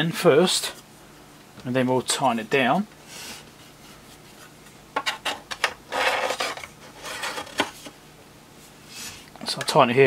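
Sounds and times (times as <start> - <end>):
metal scrape: 5.9 - 7.5.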